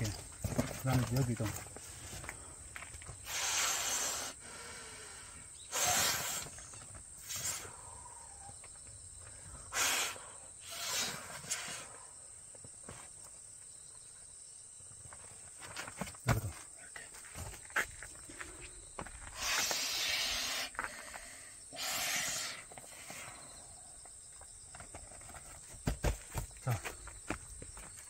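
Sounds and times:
person blowing air into valve: 0:03.2 - 0:05.1, 0:05.7 - 0:06.6, 0:07.2 - 0:07.8, 0:09.7 - 0:11.9, 0:19.3 - 0:23.3.

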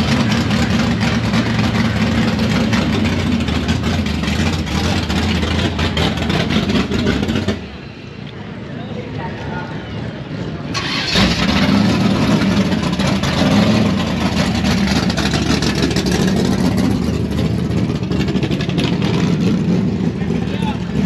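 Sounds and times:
racing car engines at full throttle: 0:00.0 - 0:21.0.

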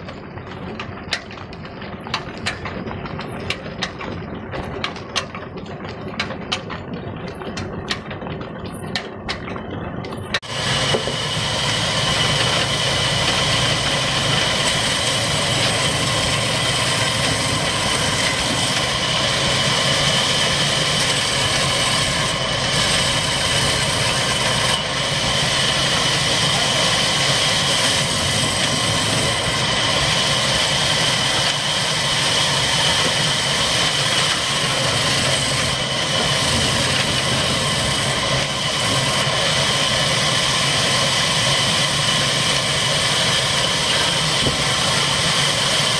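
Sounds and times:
diesel engine drone: 0:00.0 - 0:45.9
band saw cutting logs: 0:10.5 - 0:45.9.

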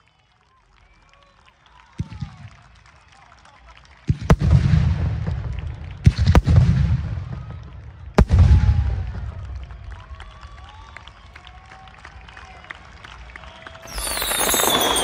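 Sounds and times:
fireworks bursting with sharp bangs: 0:04.1 - 0:09.6, 0:13.8 - 0:15.0.

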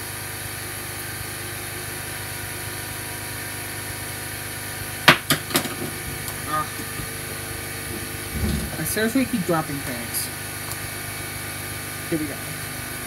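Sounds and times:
air compressor droning: 0:00.0 - 0:13.0.

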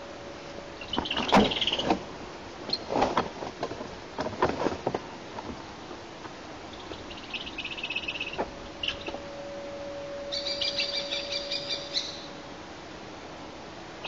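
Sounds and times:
branches rustling: 0:00.0 - 0:13.0
kestrel chattering alarm calls: 0:06.7 - 0:09.2, 0:10.3 - 0:12.3.

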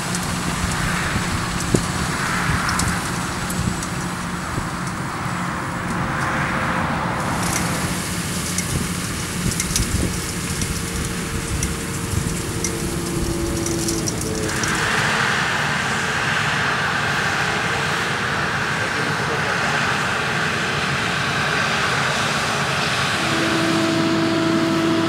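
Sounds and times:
tractor diesel engine running: 0:00.0 - 0:25.0
hiss: 0:07.2 - 0:17.9.

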